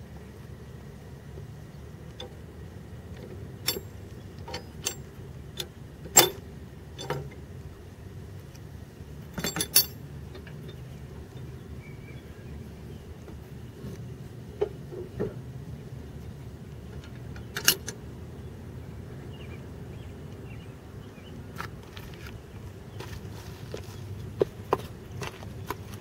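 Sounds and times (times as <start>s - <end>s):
metal lever clanking: 3.6s - 6.4s, 7.0s - 7.3s, 9.4s - 10.0s, 17.4s - 18.0s
sharp metal knocks: 6.1s - 6.4s.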